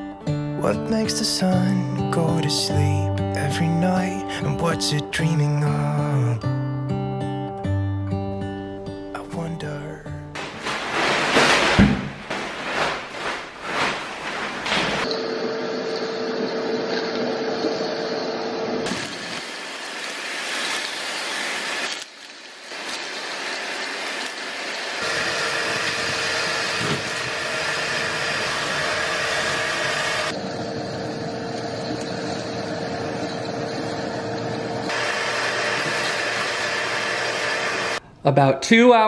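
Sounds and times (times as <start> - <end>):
shop vacuum sucking debris: 10.4 - 38.0.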